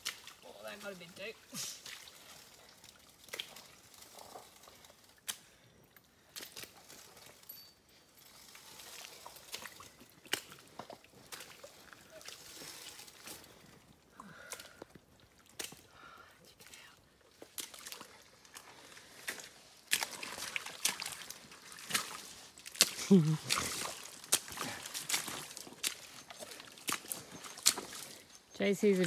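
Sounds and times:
footsteps wading through muddy water: 0.0 - 7.5, 8.1 - 16.2, 17.2 - 29.0.

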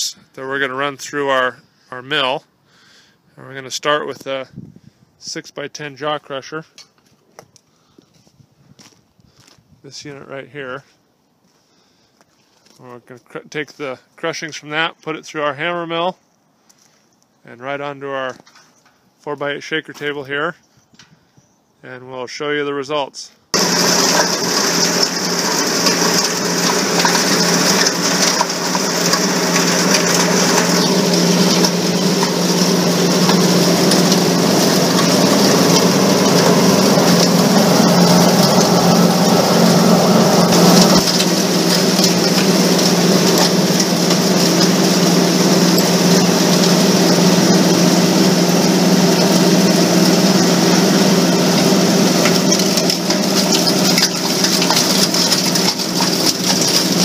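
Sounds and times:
rock crusher crunching and clattering: 23.6 - 57.0
steady machine hum: 23.6 - 57.0.

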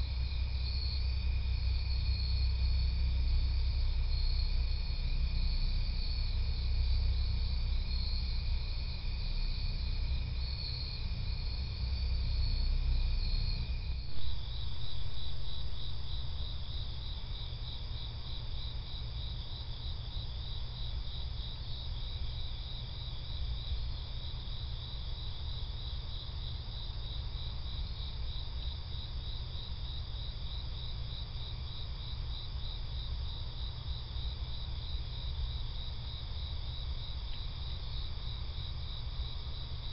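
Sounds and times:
low background rumble: 0.0 - 30.9
crickets chirping: 0.0 - 39.9.

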